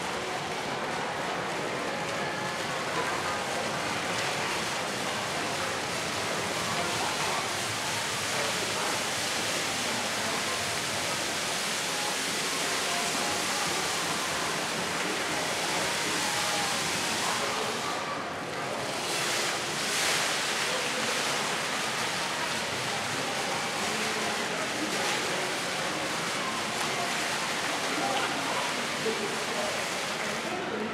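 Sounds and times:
fountain water splashing: 0.0 - 30.9.

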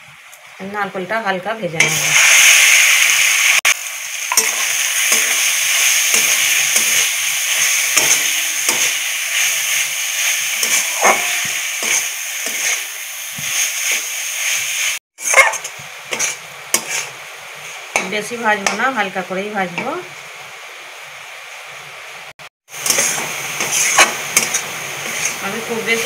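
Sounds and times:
coconut sizzling in hot fat: 0.0 - 26.0
metal spatula scraping a pan: 4.3 - 14.6, 15.2 - 18.2, 22.8 - 26.0.

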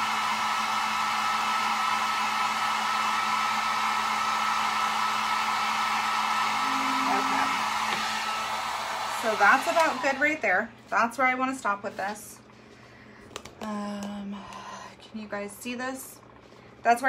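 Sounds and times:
heat gun blowing whir: 0.0 - 10.4.

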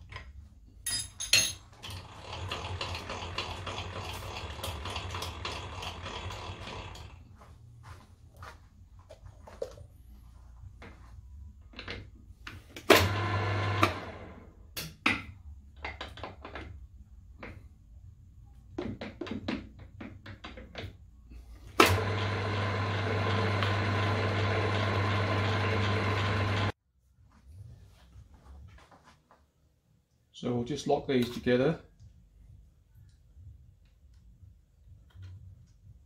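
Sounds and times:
metal tools clicking and knocking: 0.1 - 2.0
milling machine motor humming: 13.0 - 14.3, 21.8 - 26.7.

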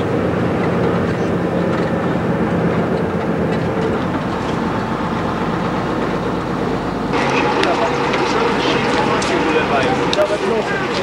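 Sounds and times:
coach engine rumble: 0.0 - 11.0
road noise inside vehicle: 0.0 - 11.0.

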